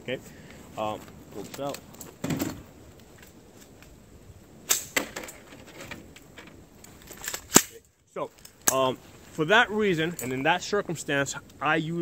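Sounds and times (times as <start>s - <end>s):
rifle metallic clicks: 7.2s - 7.8s.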